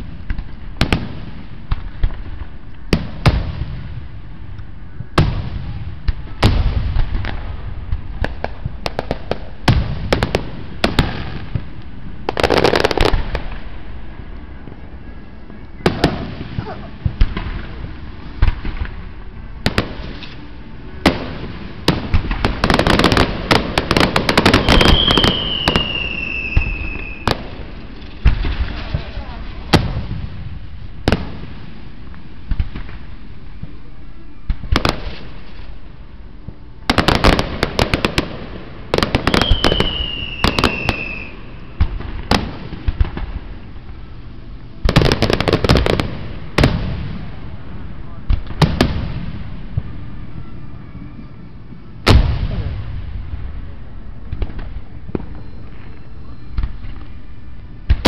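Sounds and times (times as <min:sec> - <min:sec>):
firework shells bursting: 0:19.7 - 0:29.0
thin descending whistle: 0:24.6 - 0:27.3, 0:39.4 - 0:41.5.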